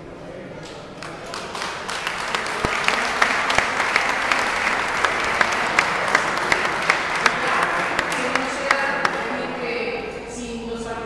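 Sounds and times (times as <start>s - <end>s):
sharp individual claps: 0.6s - 9.4s
audience applauding: 0.6s - 9.6s.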